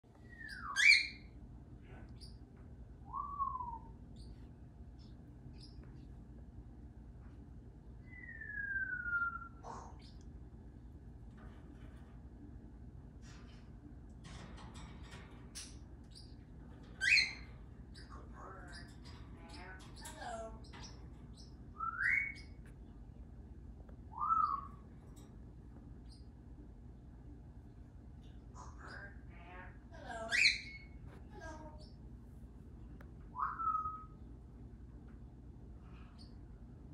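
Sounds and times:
small birds chirping: 0.1s - 12.3s, 13.0s - 36.9s
parrot high chirps: 0.2s - 1.3s, 17.0s - 22.6s, 24.1s - 24.8s, 28.5s - 32.0s, 33.3s - 34.2s
parrot whistling: 8.0s - 9.7s, 21.8s - 22.5s, 24.1s - 24.7s, 33.3s - 34.2s.

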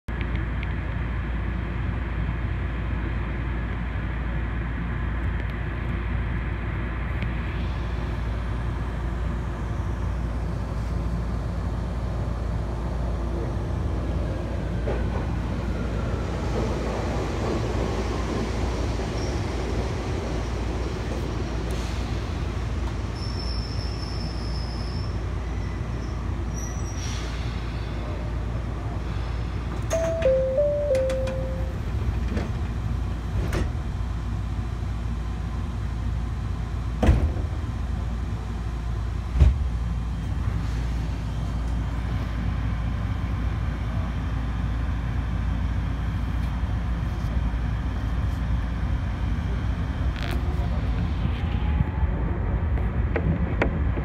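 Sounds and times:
electric train rumbling: 0.1s - 54.0s
short high tones: 29.9s - 31.8s.

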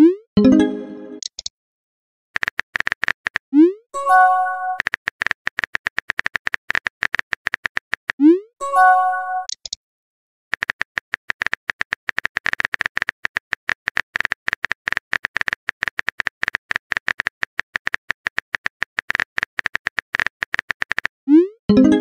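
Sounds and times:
rapid keyboard typing clicks: 2.4s - 3.5s, 4.8s - 8.2s, 10.5s - 21.2s.

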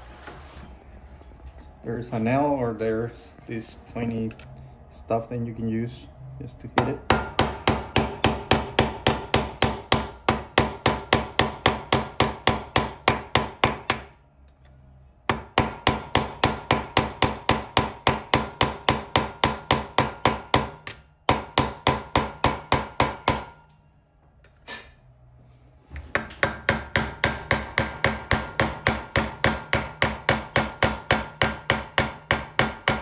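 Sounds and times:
hammer tapping metal punch: 6.8s - 14.1s, 15.3s - 23.8s, 26.1s - 33.0s.

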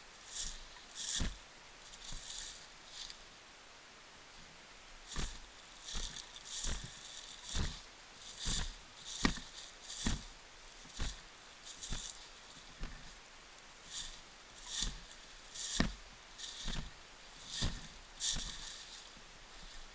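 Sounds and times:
footsteps crunching through dry leaves: 0.0s - 3.2s, 5.0s - 19.9s.

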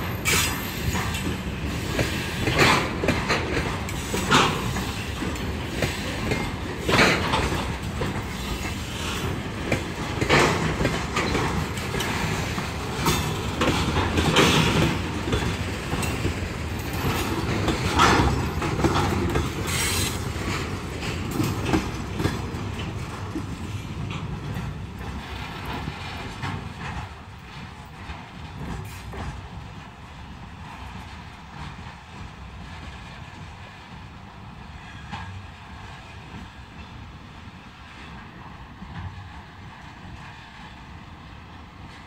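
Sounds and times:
wheels clanking over rail joints: 0.0s - 40.3s
train wheel rumble: 0.0s - 42.0s.

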